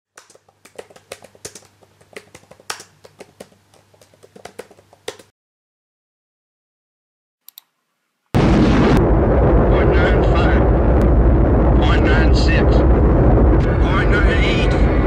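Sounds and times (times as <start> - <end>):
fast typing on keyboard: 0.1 - 5.3.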